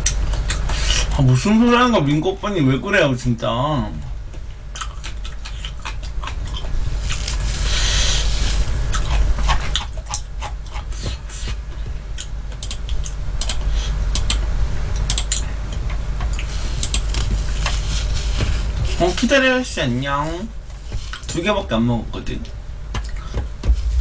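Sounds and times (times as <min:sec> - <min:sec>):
crunchy chewing: 0:04.7 - 0:17.9
low hum: 0:22.1 - 0:24.0.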